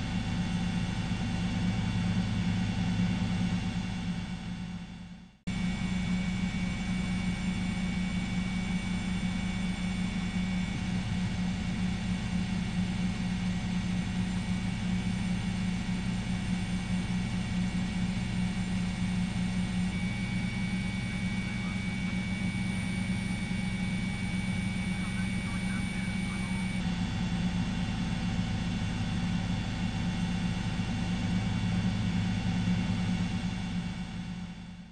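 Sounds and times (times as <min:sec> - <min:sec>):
helicopter engine and rotor drone: 0:00.0 - 0:34.9
thin high whine: 0:19.0 - 0:26.8.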